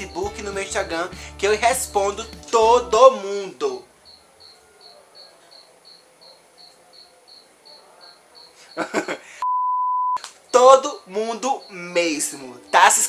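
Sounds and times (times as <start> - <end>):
cricket chirping: 3.8 - 9.3, 10.2 - 13.0.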